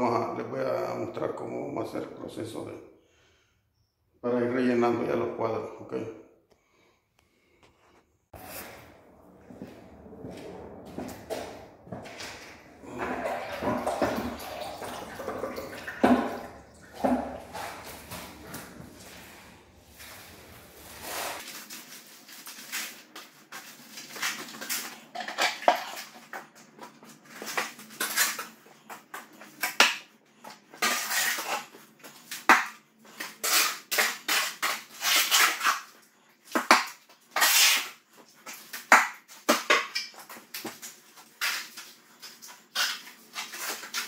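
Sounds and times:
shovel scraping metal wheelbarrow: 0:08.4 - 0:21.4.

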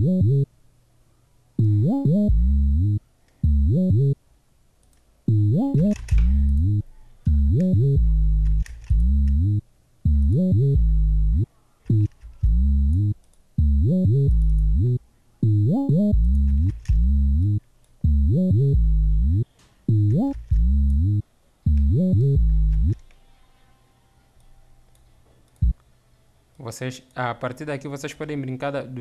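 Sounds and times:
deep sliding bass notes: 0:01.6 - 0:04.2, 0:05.3 - 0:23.0.

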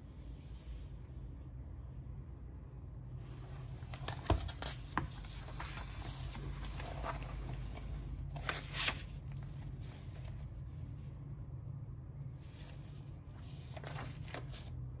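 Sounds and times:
steady low hum: 0:00.0 - 0:15.0
paper rustling: 0:03.2 - 0:10.6, 0:12.5 - 0:14.7
pages swishing: 0:03.3 - 0:10.5.

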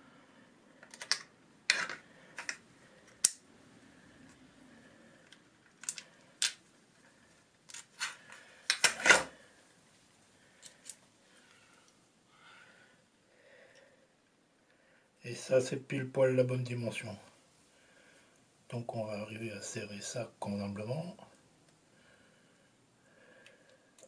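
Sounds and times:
screwdriver bits clicking and clattering: 0:00.8 - 0:03.4, 0:05.2 - 0:06.6.

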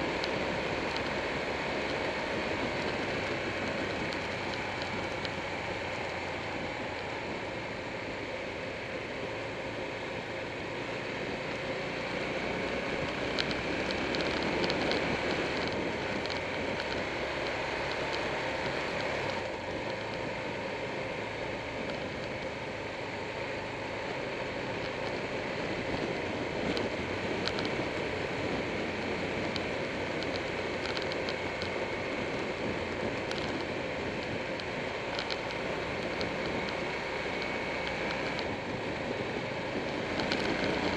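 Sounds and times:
wind rushing over camera: 0:00.0 - 0:08.0, 0:11.8 - 0:22.9, 0:23.9 - 0:40.9
motorcycle engine running: 0:00.0 - 0:40.9.

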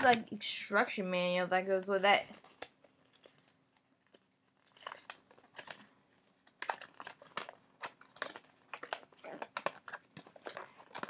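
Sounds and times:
paper crinkling and rustling: 0:02.2 - 0:11.0.

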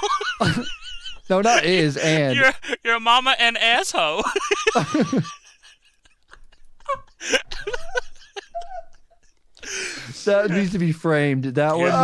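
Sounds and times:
men laughing quietly: 0:04.6 - 0:10.7.

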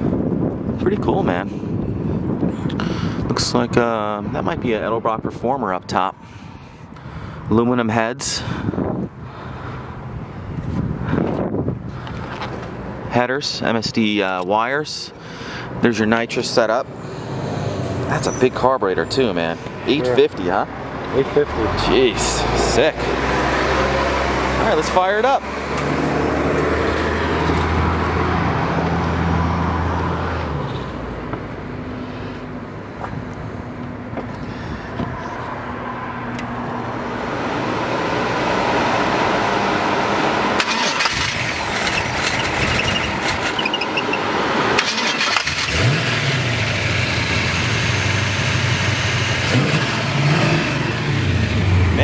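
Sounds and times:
engine revving: 0:17.0 - 0:31.0, 0:36.6 - 0:52.0.

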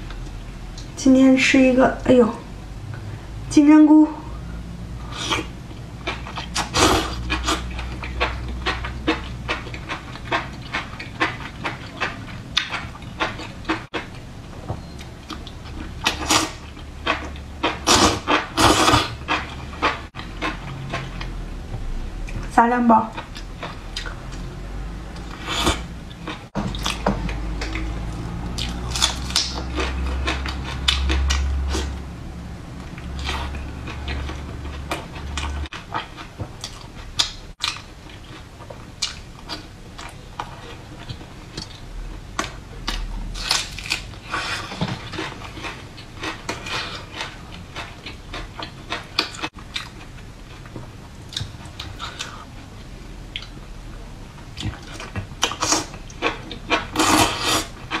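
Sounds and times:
low hum: 0:19.2 - 0:35.8.

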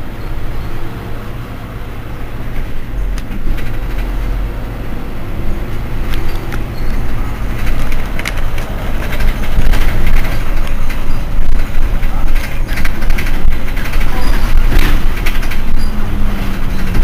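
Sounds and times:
bus engine idling: 0:00.0 - 0:17.0
scattered clicks: 0:07.5 - 0:16.0.

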